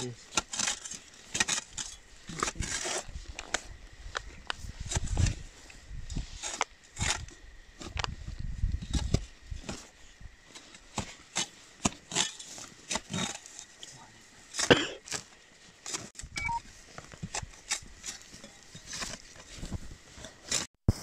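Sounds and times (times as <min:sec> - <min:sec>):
digging tool scraping stony soil: 0:00.0 - 0:21.0
digging tool striking rock: 0:00.3 - 0:03.6, 0:10.8 - 0:13.7.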